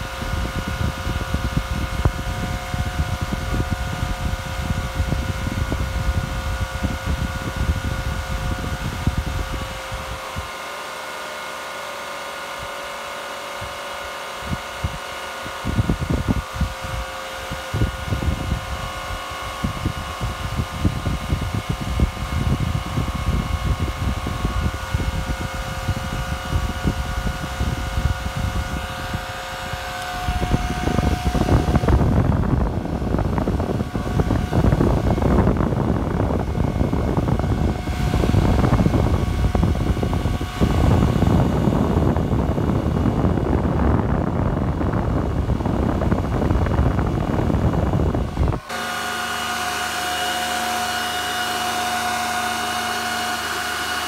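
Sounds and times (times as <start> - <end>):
wind buffeting microphone: 0.0 - 10.6, 13.5 - 54.0
cooling fans rushing: 0.0 - 54.0.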